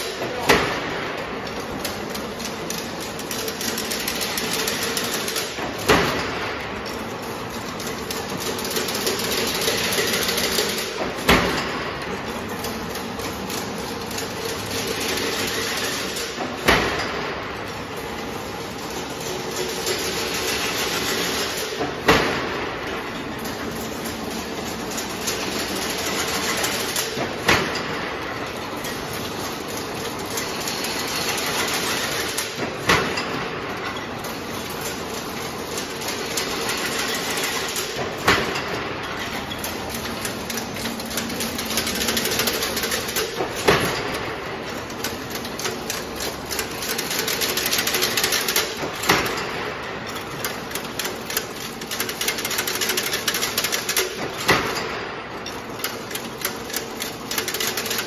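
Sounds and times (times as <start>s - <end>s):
fence weaving machine clatter: 0.0s - 58.0s
sharp machine knock: 2.7s - 6.8s, 8.1s - 13.3s, 14.0s - 17.7s, 19.6s - 23.0s.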